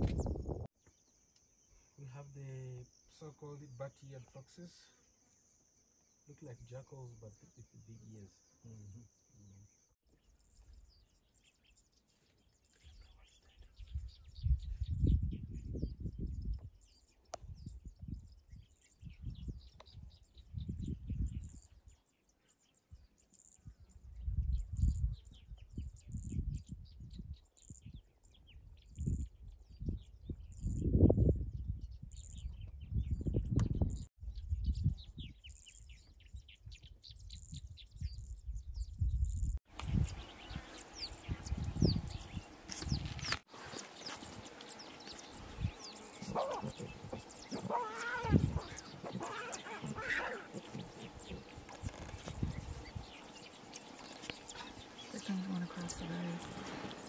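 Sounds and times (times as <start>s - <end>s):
small birds chirping: 0.0s - 57.0s
animal wavering calls: 46.0s - 51.5s.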